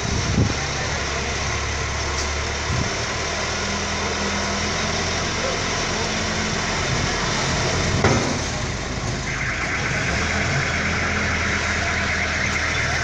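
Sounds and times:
diesel engine running: 0.0s - 13.0s
higher-pitched noise: 9.3s - 13.0s.

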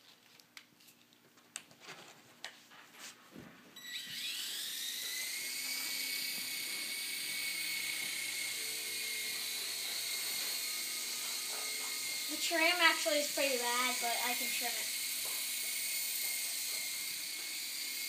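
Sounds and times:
toy helicopter motor whine: 3.8s - 18.0s.

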